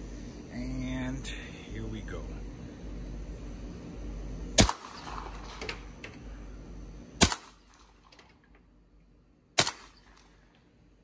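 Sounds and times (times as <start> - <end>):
suppressed gunshots: 4.6 - 5.9, 7.2 - 8.2, 9.6 - 10.3.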